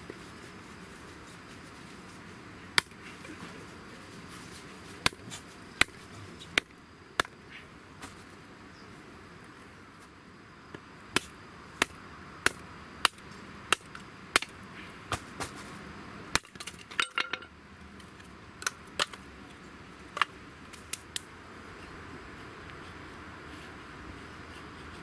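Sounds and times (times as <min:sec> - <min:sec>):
hatchet chopping kindling: 0:11.1 - 0:15.6, 0:16.3 - 0:17.0.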